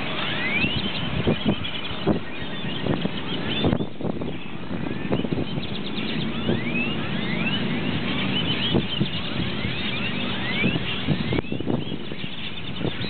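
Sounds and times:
flock of birds chirping: 0.0 - 13.0
low rumble of traffic: 0.0 - 13.0.

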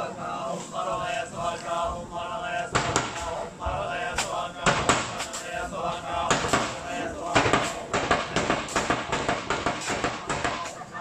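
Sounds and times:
men chanting in unison: 0.0 - 11.0
sharp knocks: 2.7 - 3.3, 4.2 - 5.4, 7.4 - 10.8.

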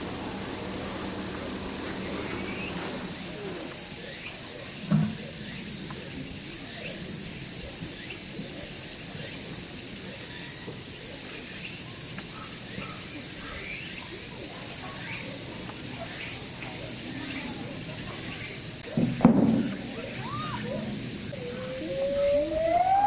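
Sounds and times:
insects droning: 0.0 - 23.0
dull thump: 19.0 - 19.8.

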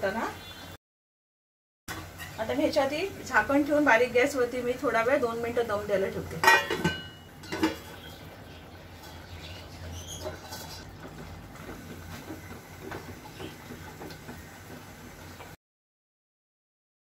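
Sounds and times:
curry bubbling in a pan: 2.0 - 15.6
spatula scraping a pan: 9.0 - 13.6.

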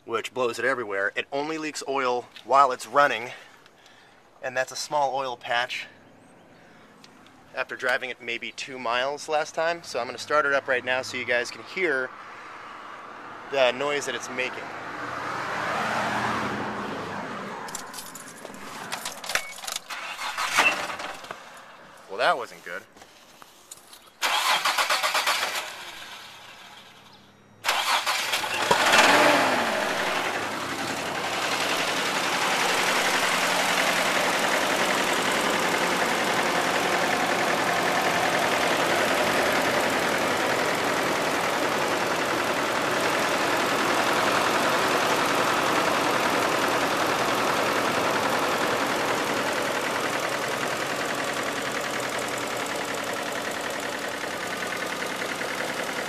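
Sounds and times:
engine starting and revving: 15.2 - 21.6, 24.2 - 56.0
engine cranking: 17.6 - 21.6, 23.7 - 56.0
loud engine knocking: 30.3 - 56.0.

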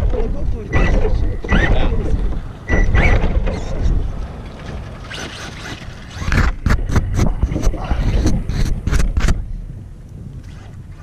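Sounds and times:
wind on microphone: 0.0 - 11.0
toy car motor whining: 5.1 - 6.6.

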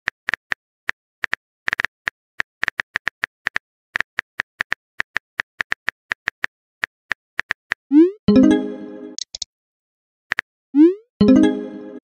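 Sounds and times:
app message alert: 7.9 - 9.4, 10.8 - 12.0
keyboard typing clicks: 9.2 - 9.4.

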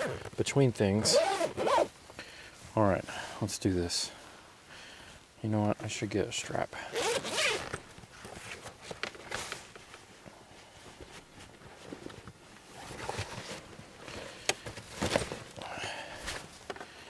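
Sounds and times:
zipper pulled open: 0.0 - 0.3, 1.0 - 1.9, 6.9 - 7.8, 12.7 - 13.6
rummaging through gear: 1.0 - 1.9, 6.9 - 9.7, 11.7 - 16.8.

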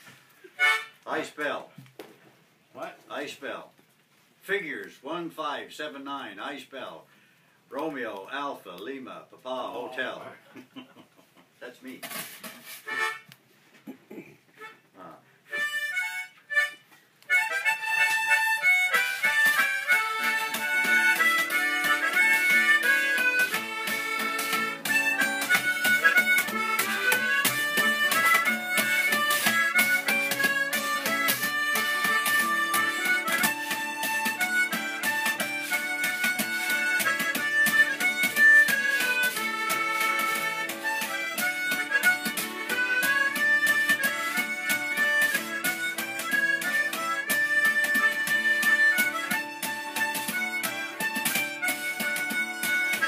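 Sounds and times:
harmonica playing folk tune: 0.0 - 1.3, 12.0 - 13.4, 14.6 - 53.0.

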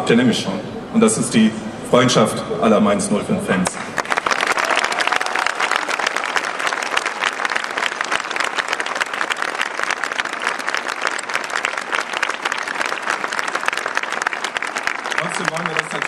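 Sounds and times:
crowd applauding: 3.8 - 16.0.

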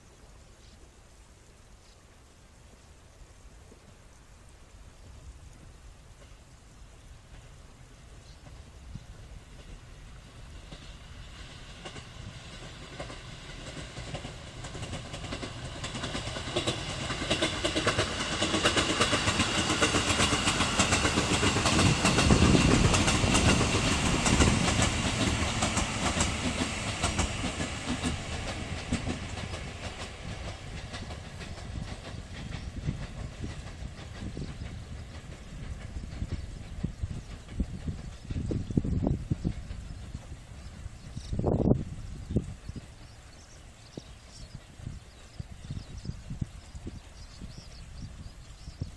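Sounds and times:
electric train passing: 3.9 - 48.9
wheels clattering over rail joints: 7.3 - 41.8.

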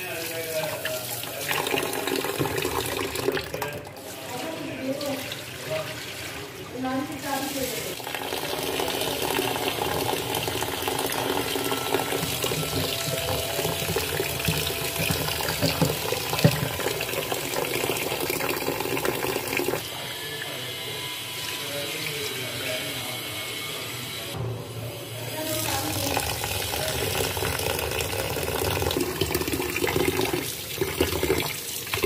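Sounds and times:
tap water splashing into bowl: 0.6 - 3.9, 7.6 - 19.8.

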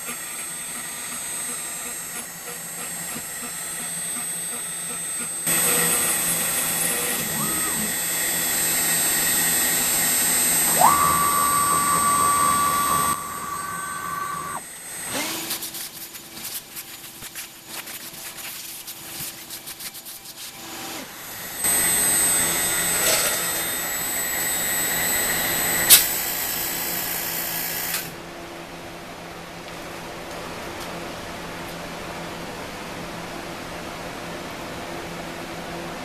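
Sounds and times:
router spindle high whine: 0.0 - 15.8, 20.5 - 28.1
low hum: 5.5 - 14.6.

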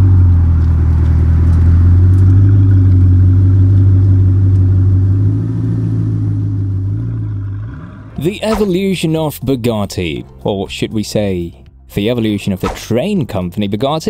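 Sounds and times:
car engine running: 0.0 - 8.4.

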